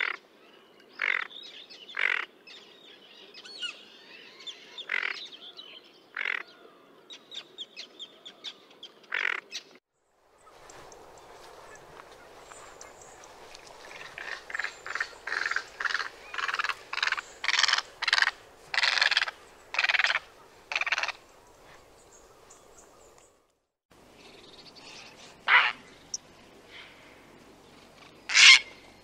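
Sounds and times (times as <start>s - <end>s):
egret harsh calls: 25.4s - 25.9s.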